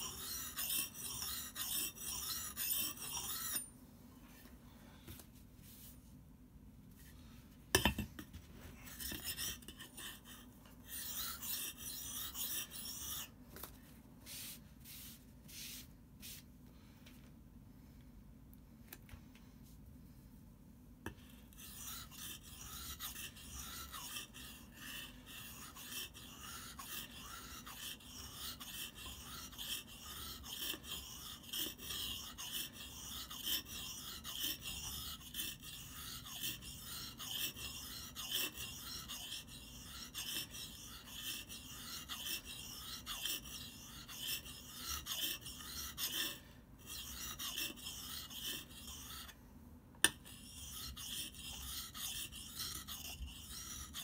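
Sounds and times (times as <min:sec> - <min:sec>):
blade scraping on whetstone: 0:00.0 - 0:03.7, 0:08.9 - 0:13.3, 0:21.1 - 0:49.4, 0:50.0 - 0:54.0.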